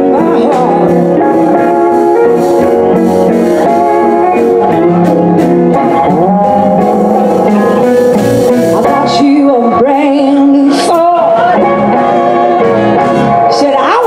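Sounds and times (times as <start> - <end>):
woman singing: 0.0 - 2.3, 8.8 - 14.0
blues band playing: 0.0 - 14.0
electric guitars: 0.0 - 14.0.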